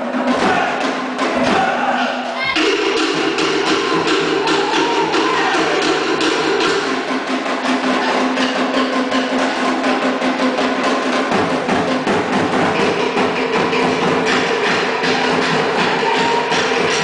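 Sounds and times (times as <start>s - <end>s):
wooden slit drums playing fast rhythm: 0.0s - 17.0s.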